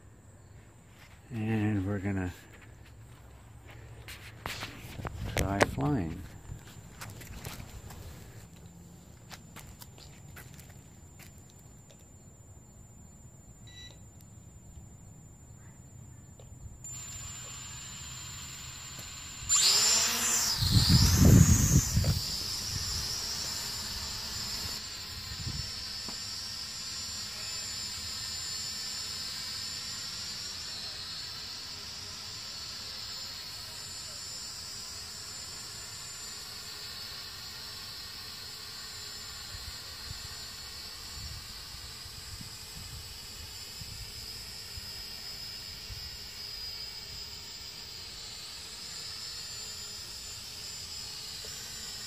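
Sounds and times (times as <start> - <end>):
quadcopter propellers whining: 16.4 - 52.0.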